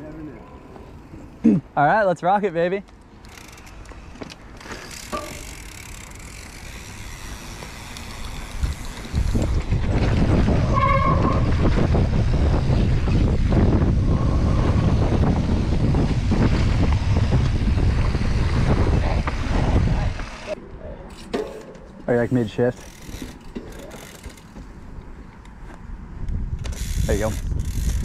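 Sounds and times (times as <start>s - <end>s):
bike clicks: 2.8s - 10.8s, 11.4s - 28.0s
knobby tyres on dirt: 3.1s - 20.6s, 22.1s - 28.0s
wind rushing over microphone: 8.4s - 20.8s, 25.8s - 28.0s
brief squeal: 10.7s - 11.5s.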